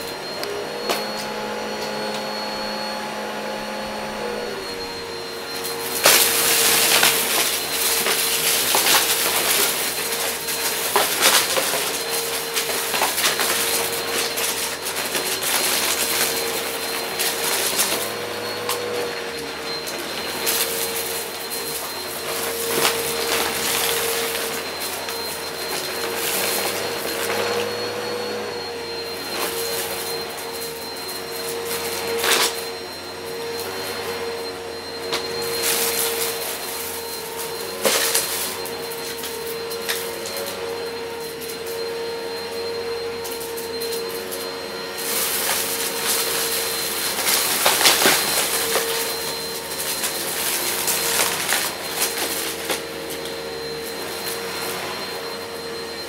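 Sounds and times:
vacuum cleaner motor whine: 0.0s - 56.0s
cardboard pieces rattling up nozzle: 5.8s - 25.1s, 45.0s - 53.3s.

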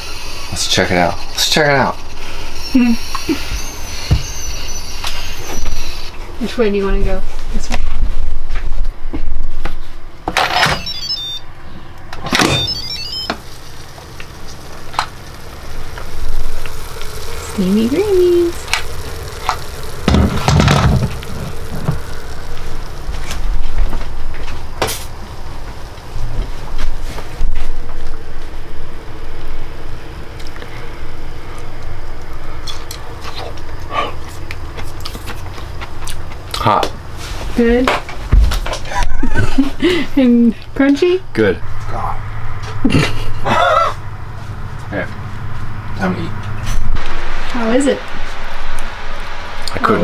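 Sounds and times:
steady low rumble: 12.0s - 38.4s.

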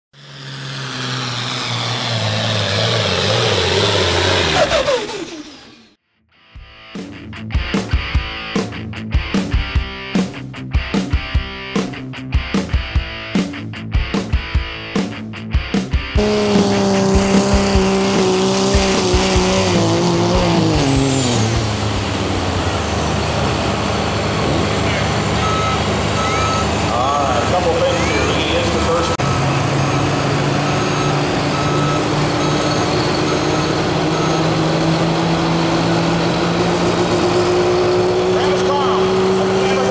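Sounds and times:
tractor engine running: 0.1s - 6.0s, 16.0s - 39.9s.

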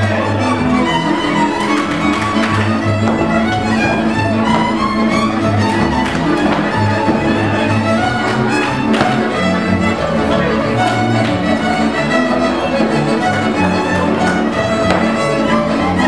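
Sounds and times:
fiddles bowing a dance tune: 0.0s - 16.0s
pulsing double bass line: 0.0s - 16.0s.

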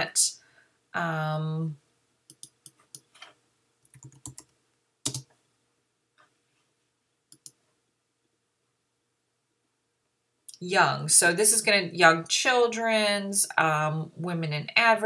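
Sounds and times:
keyboard typing: 2.3s - 5.3s, 7.3s - 7.6s.

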